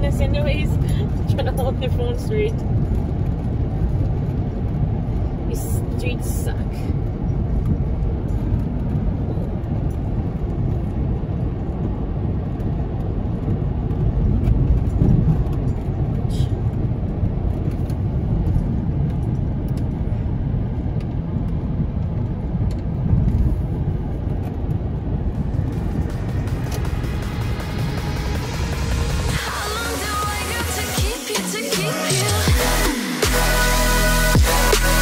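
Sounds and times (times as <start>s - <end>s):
car road rumble: 0.0s - 35.0s.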